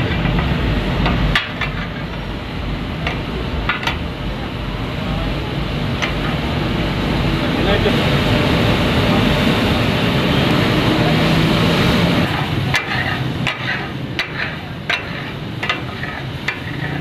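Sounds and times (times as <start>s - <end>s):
spatula blades clacking on griddle: 12.2s - 17.0s.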